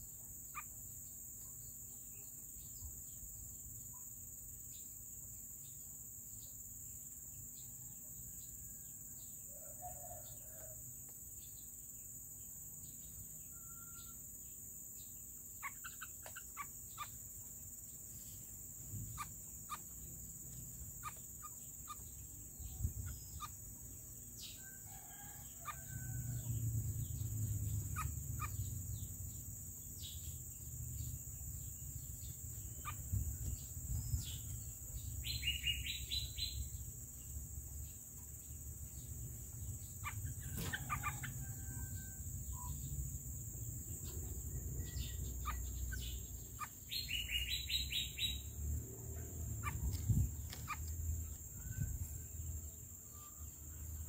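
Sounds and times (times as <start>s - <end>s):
rapid high bird chirping: 12.7s - 54.0s.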